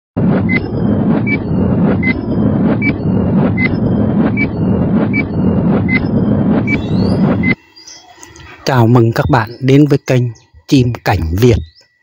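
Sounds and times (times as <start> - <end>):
loud deep noise: 0.2 - 9.3.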